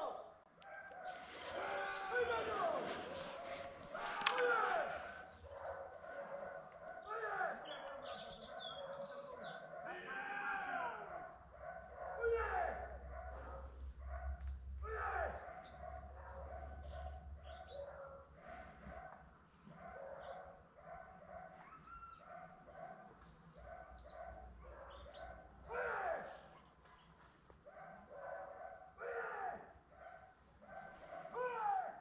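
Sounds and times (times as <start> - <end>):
dogs barking: 0.6 - 10.1, 10.8 - 32.0
dog howling: 0.7 - 6.5
small birds chirping: 0.7 - 9.8, 21.5 - 27.5.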